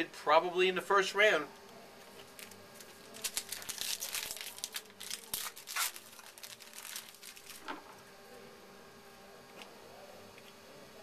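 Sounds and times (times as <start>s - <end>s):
card pack crinkling: 2.3s - 7.8s.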